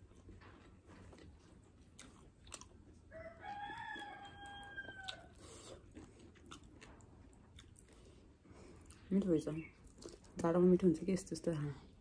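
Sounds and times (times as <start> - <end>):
chewing mouth clicks: 0.6 - 2.8, 3.7 - 9.1, 9.8 - 10.4
rooster crowing: 3.1 - 5.4.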